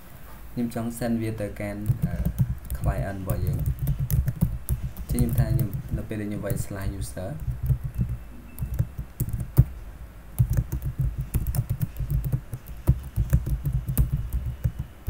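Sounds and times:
typing on computer keyboard: 1.8s - 9.8s, 10.4s - 15.0s.

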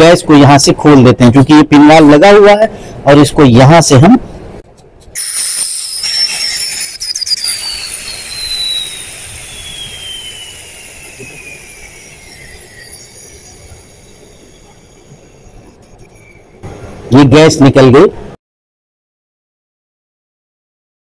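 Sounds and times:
gas venting hiss: 5.2s - 16.4s
descending whistle: 5.2s - 16.6s.

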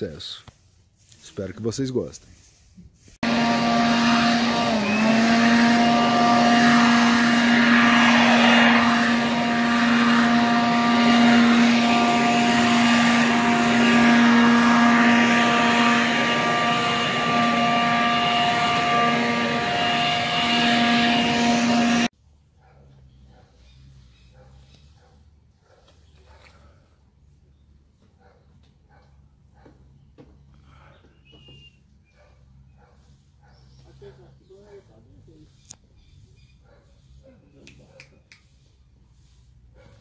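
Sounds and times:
electric leaf blower running: 3.2s - 22.1s.

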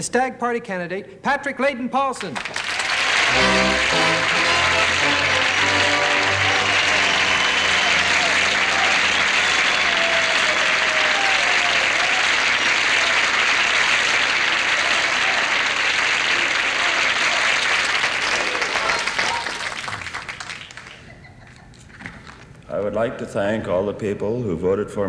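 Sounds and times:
audience applause: 2.4s - 21.5s.

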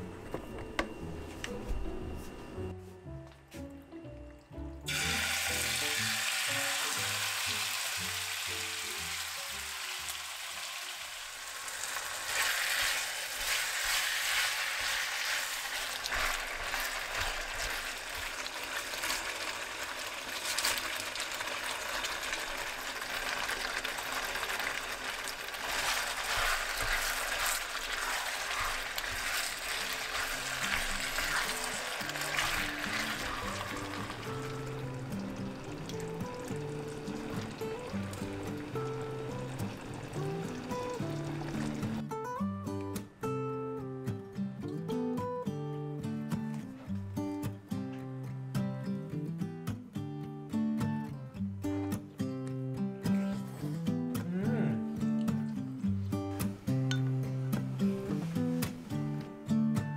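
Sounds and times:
background music: 0.0s - 10.9s, 26.7s - 51.6s
food sizzling in a pan: 4.8s - 42.0s.

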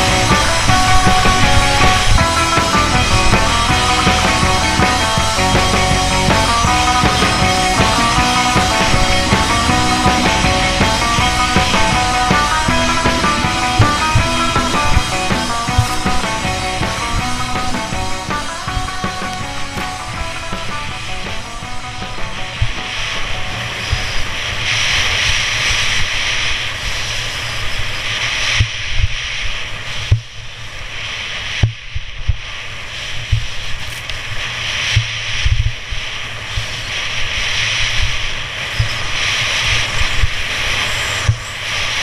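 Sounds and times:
wind buffeting microphone: 0.0s - 26.9s.

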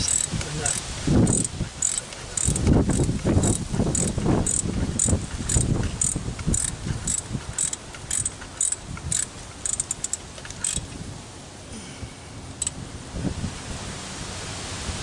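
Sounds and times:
socket ratchet clicking: 0.0s - 10.8s.

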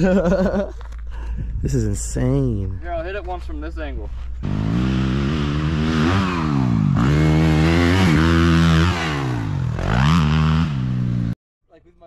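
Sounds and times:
dirt bike engine revving: 4.4s - 11.4s.

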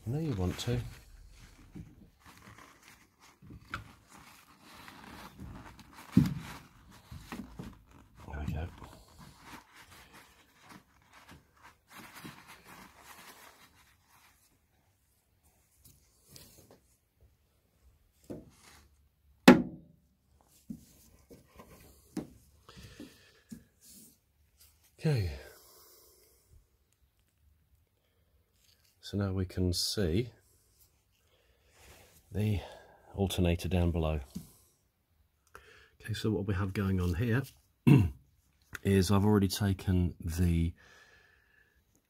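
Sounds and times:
paper tissue rustling: 0.0s - 17.0s, 18.2s - 19.1s.

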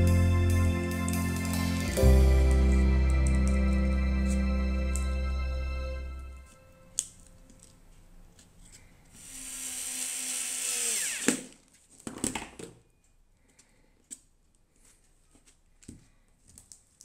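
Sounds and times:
cordless drill driving screw: 9.2s - 11.6s.

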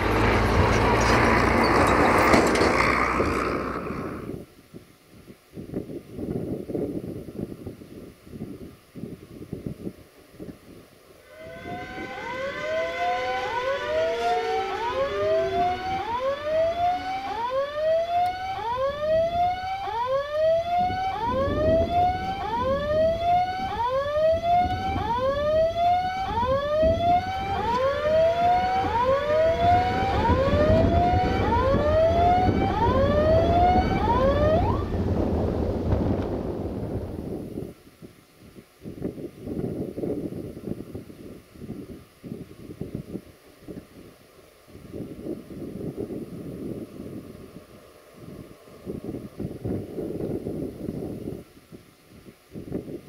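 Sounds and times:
level crossing warning whoop: 11.2s - 34.9s
steady held warning tone: 11.2s - 34.9s.

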